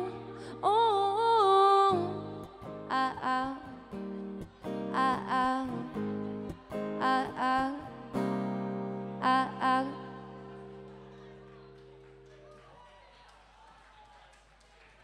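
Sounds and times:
woman singing: 0.0 - 10.9
acoustic guitar strummed chords: 0.0 - 12.2.

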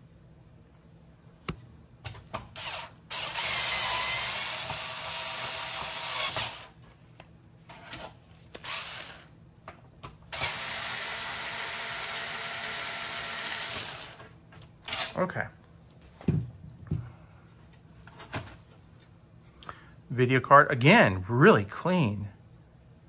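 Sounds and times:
electric screwdriver running: 2.6 - 6.7, 8.6 - 9.3, 10.3 - 14.2.

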